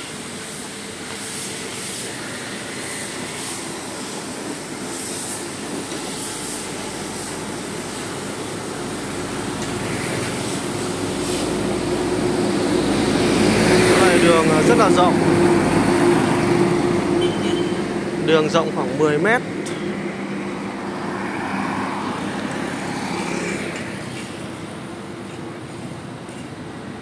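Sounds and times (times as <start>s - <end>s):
heavy truck engine: 0.0s - 27.0s
motorbikes passing: 6.1s - 27.0s.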